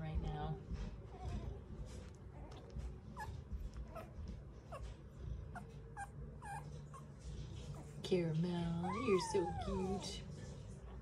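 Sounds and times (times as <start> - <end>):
puppy squeaking and whimpering: 3.2 - 8.0, 8.7 - 10.2.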